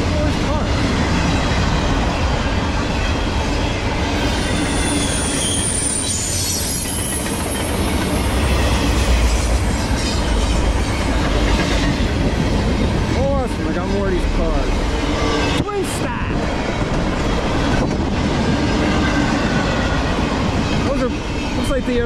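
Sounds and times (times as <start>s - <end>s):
steel wheels rumbling on rail: 0.0s - 22.0s
high wheel squeal: 3.7s - 11.2s.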